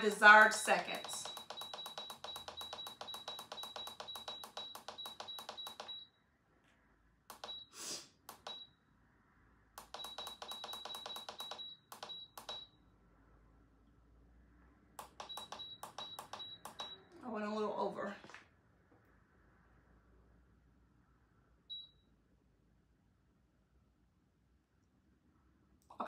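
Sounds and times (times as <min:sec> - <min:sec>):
short high beeps: 0:00.4 - 0:06.1, 0:07.4 - 0:07.7, 0:09.9 - 0:12.7, 0:15.2 - 0:17.0.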